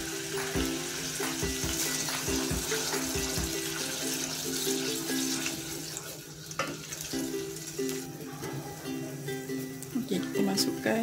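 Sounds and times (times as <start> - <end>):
plucked-string melody: 0.0 - 6.0, 6.6 - 11.0
paste sizzling in hot oil: 0.0 - 8.3.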